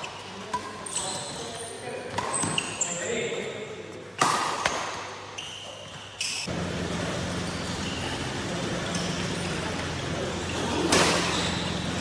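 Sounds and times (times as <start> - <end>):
low hum and hiss of hall: 6.4 - 12.0.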